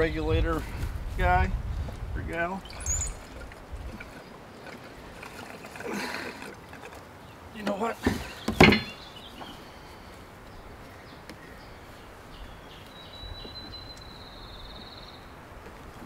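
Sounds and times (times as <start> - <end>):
bird trilling: 2.6 - 3.4.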